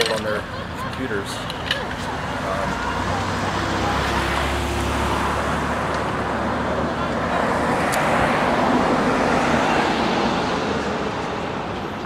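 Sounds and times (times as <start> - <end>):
car driving past: 2.3 - 11.7.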